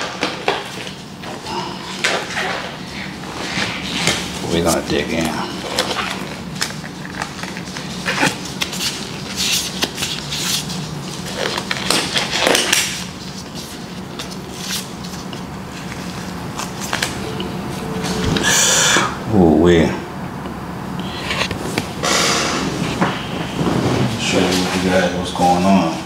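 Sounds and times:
rubber gloves rustling and snapping: 0:03.5 - 0:17.2.

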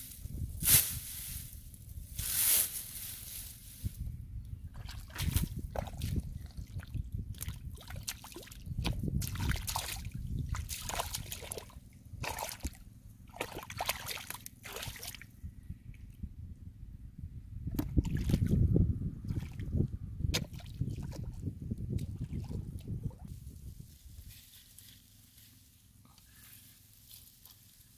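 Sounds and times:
splashing in muddy water: 0:04.7 - 0:15.3, 0:17.8 - 0:18.6, 0:19.3 - 0:19.7, 0:20.3 - 0:23.3.

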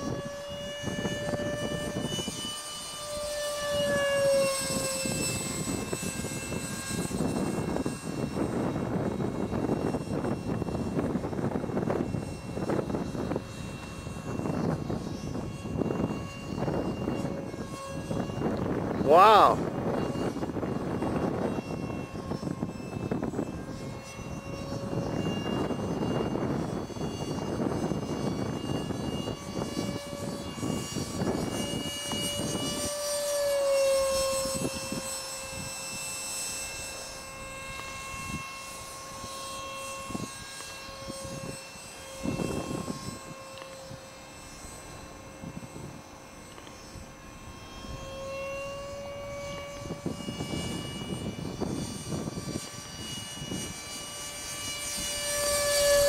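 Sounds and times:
model jet motor whine: 0:00.0 - 0:56.0
wind rush on microphone: 0:00.0 - 0:56.0.

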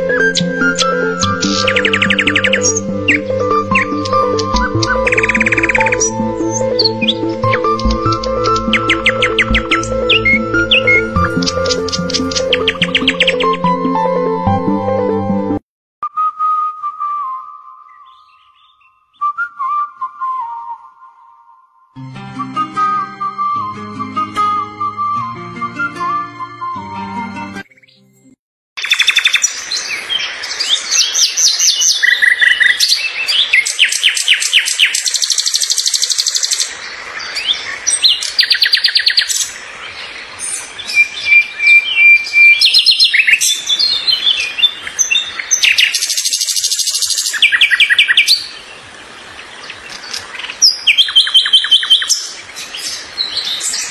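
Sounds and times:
birds chirping and singing: 0:00.0 - 0:13.8, 0:17.8 - 0:19.3, 0:28.8 - 0:53.9
bird whistle: 0:00.1 - 0:07.2, 0:16.1 - 0:21.5, 0:40.9 - 0:48.5.

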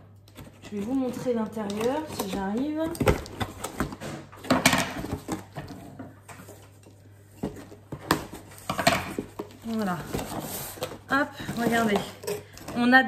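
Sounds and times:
cardboard knocks and scrapes: 0:07.4 - 0:12.2.

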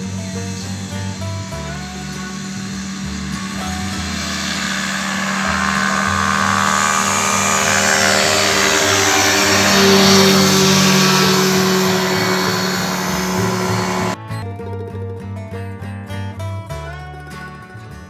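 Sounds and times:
engine and propeller drone: 0:00.0 - 0:14.2
faint guitar music: 0:00.0 - 0:18.0.

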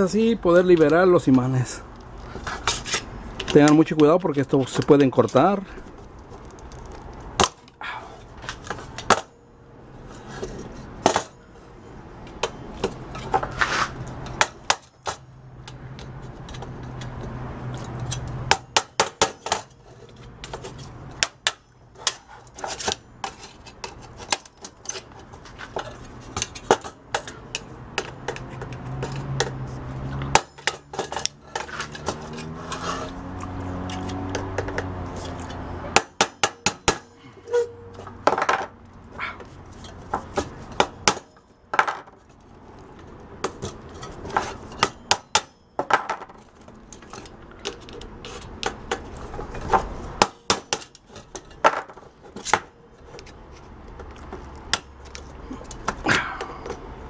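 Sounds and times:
metal tools clicking on metal: 0:14.2 - 0:38.1.

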